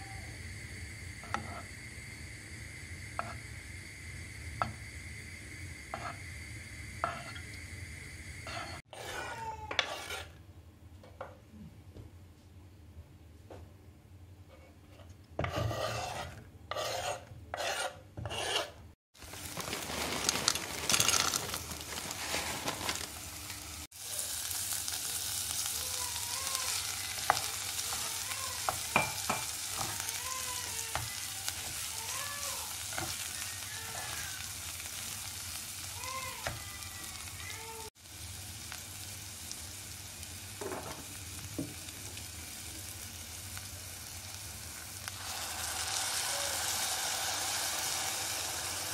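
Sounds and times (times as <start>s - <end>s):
rice sizzling in a pot: 0.0s - 8.9s, 19.2s - 48.9s
vegetables sizzling in butter: 0.0s - 8.9s, 15.4s - 48.9s.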